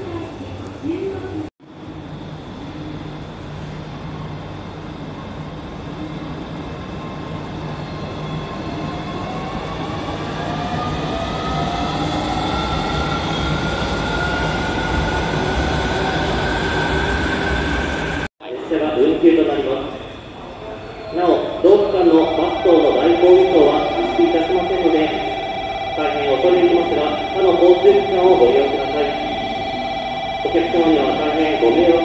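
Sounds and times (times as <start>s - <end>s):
electric train motor whine: 21.7s - 32.0s.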